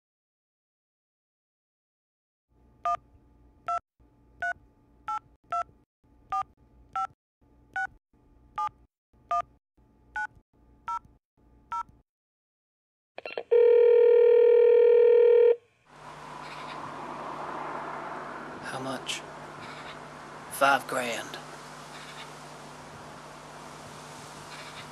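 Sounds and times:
steady phone line tone: 13.5 - 15.7
steady outdoor hiss: 15.9 - 24.9.

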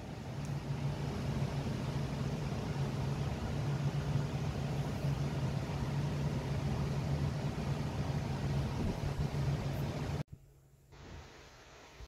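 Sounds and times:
steady low hum: 0.0 - 12.0
even hiss: 10.9 - 12.0.

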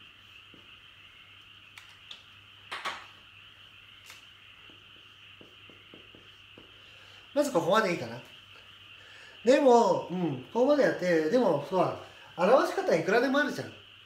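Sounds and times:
marker strokes on whiteboard: 0.0 - 8.7
room noise hiss: 0.0 - 14.0
marker clicks: 1.7 - 3.1
marker scraping on whiteboard: 4.6 - 6.8.

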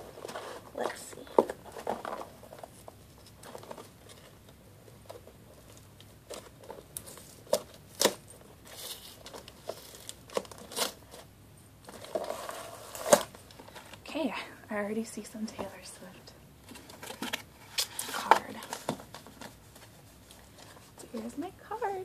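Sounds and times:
paper crinkling and tearing: 5.1 - 14.0.

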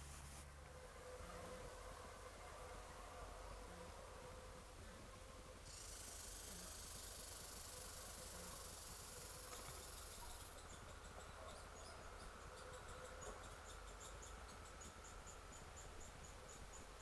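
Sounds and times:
high insect trill: 5.6 - 17.0.

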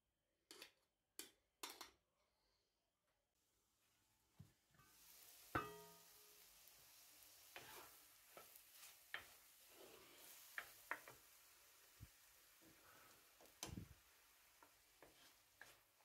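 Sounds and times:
meat sizzling in pan: 4.8 - 16.0
wooden spoon scraping pan: 7.5 - 11.2, 14.6 - 16.0.

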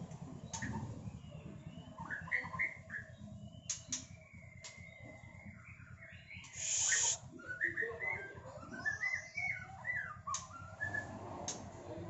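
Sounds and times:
bird singing clear notes: 0.5 - 11.0
bird harsh rasp: 6.5 - 7.2.

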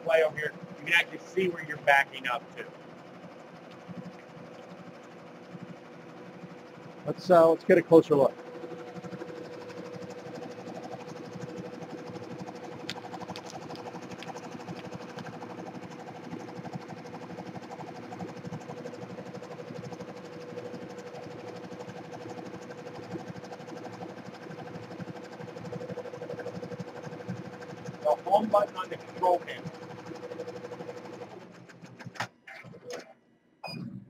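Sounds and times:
embroidery machine stitching: 4.8 - 32.1.

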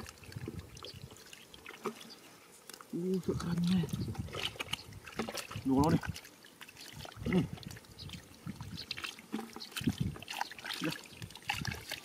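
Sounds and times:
hands sloshing through muddy water: 0.0 - 12.0
small splashes and trickles: 0.0 - 12.0.

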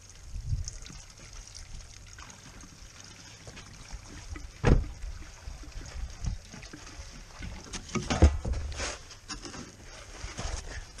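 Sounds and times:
gasoline trickling into a pan: 0.0 - 11.0
dull thump: 4.6 - 5.0.

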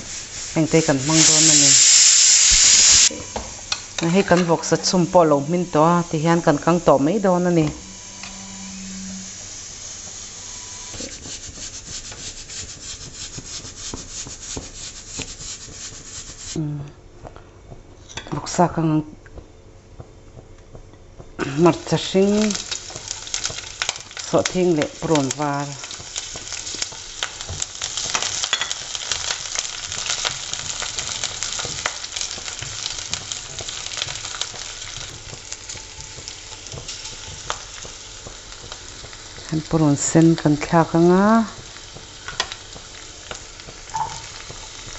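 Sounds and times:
hot oil hissing and crackling: 0.0 - 16.6, 21.2 - 44.9
spatula tapping and scraping pan: 11.0 - 16.4, 25.2 - 39.5.

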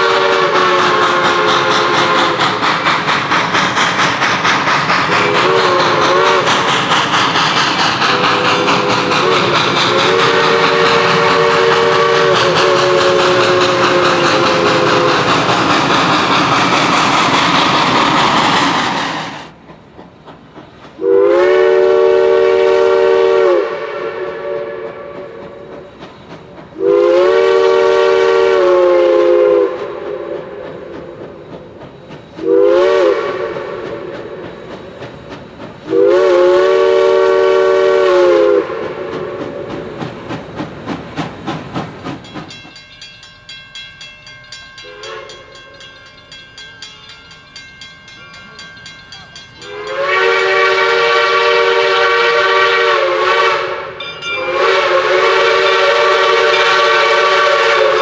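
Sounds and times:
steam train chime whistle: 0.0 - 16.6, 21.0 - 35.0, 35.8 - 40.0, 42.2 - 58.0
train clattering on rails: 0.0 - 58.0.

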